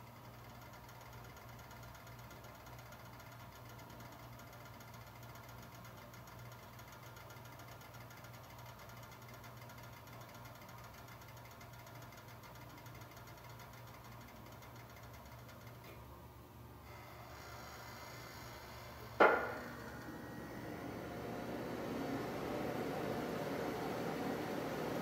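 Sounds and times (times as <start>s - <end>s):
low hum: 18.3s - 25.0s.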